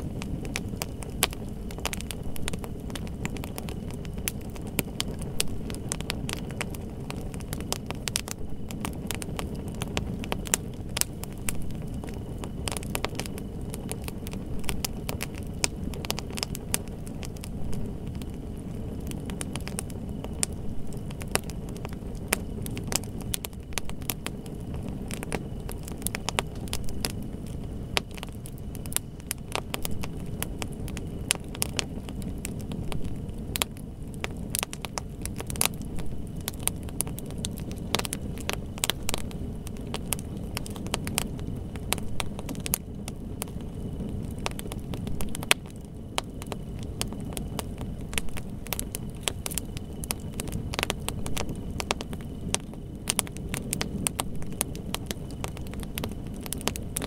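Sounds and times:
wood fire crackling: 0:00.0 - 0:57.0.

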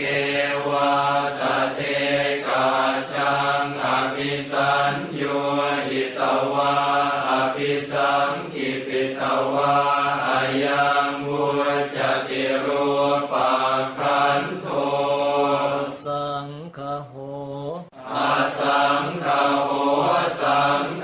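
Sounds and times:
men chanting in monotone: 0:00.0 - 0:21.0.

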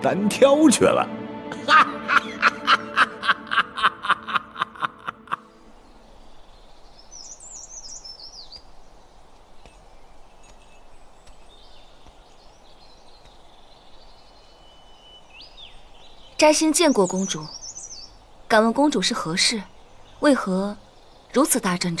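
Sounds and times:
small birds chirping: 0:05.1 - 0:22.0.

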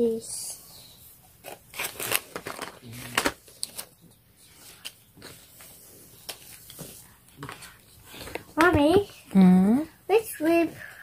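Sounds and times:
card rustling: 0:01.4 - 0:09.3.

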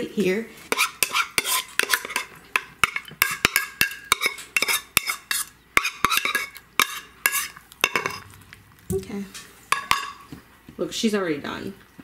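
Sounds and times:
dog food clattering in bowl: 0:07.8 - 0:08.4.

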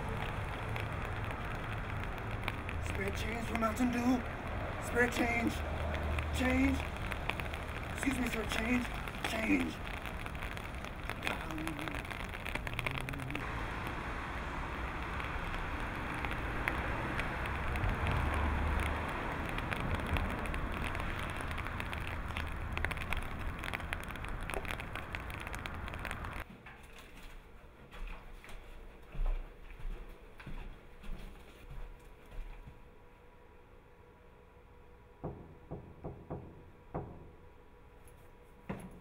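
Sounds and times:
street noise hiss: 0:00.0 - 0:26.5
soft footsteps: 0:26.4 - 0:32.9.

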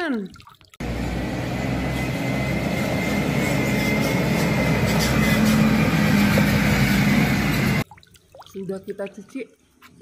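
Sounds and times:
truck diesel engine running: 0:00.8 - 0:07.8.

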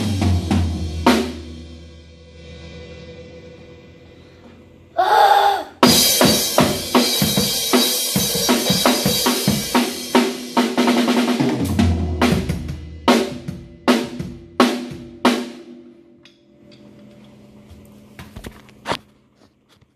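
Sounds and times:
drum kit played fast: 0:00.0 - 0:03.9, 0:05.8 - 0:15.8
cymbal and drum strikes: 0:05.8 - 0:16.4.

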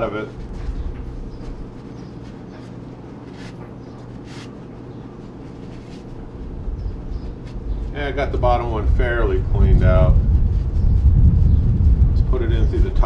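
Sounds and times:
towel rubbing metal: 0:01.4 - 0:06.4
low rumble: 0:06.2 - 0:13.0.

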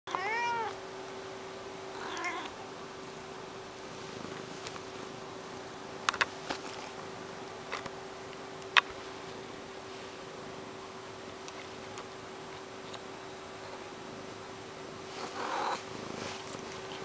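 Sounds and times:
cat meowing: 0:00.1 - 0:00.8, 0:02.0 - 0:02.5
steady low hum: 0:00.1 - 0:17.0.

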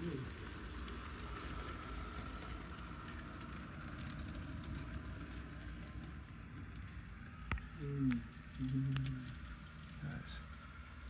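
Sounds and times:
model train wheels clattering: 0:00.0 - 0:07.4
faint motor whine: 0:00.0 - 0:11.0.

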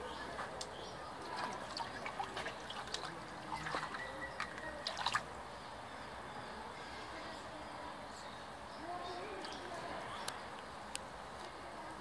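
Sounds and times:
bird splashing in a puddle: 0:01.2 - 0:05.4.

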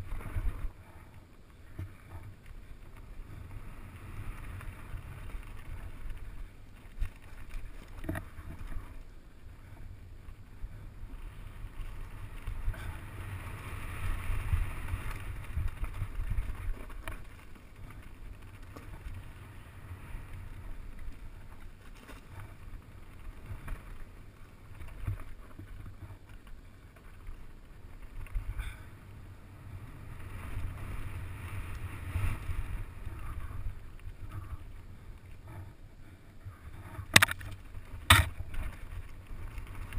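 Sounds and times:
bike knocks and rattles: 0:37.0 - 0:39.0.

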